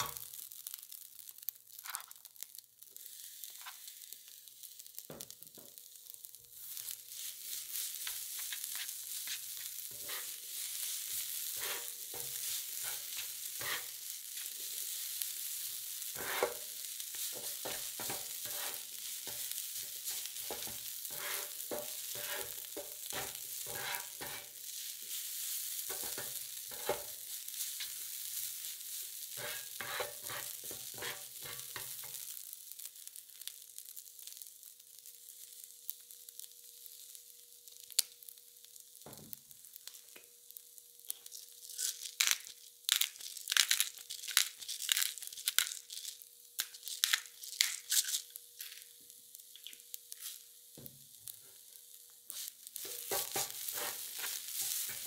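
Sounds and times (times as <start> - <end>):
food sizzling on hot plate: 0.0 - 55.0
spatulas scraping and tapping: 8.0 - 10.4, 11.5 - 13.9, 16.1 - 24.6, 25.9 - 27.2, 29.4 - 32.2, 52.8 - 55.0.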